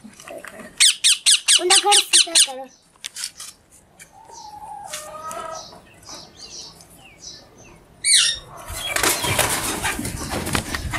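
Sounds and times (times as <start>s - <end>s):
parakeet chirping: 0.8s - 2.7s, 8.0s - 8.5s
wings flapping: 8.7s - 10.9s.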